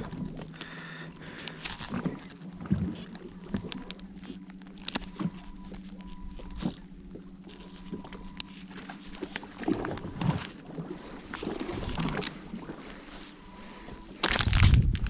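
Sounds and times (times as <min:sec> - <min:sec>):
boat motor humming: 0:00.0 - 0:15.0
faint high beep: 0:05.0 - 0:06.7, 0:13.2 - 0:14.5.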